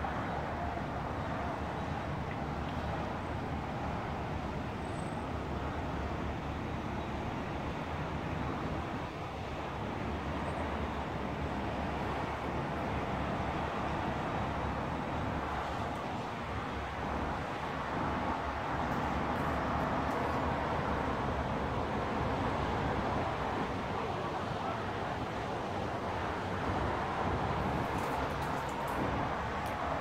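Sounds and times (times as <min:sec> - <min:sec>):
distant city traffic hum: 0:00.0 - 0:30.0.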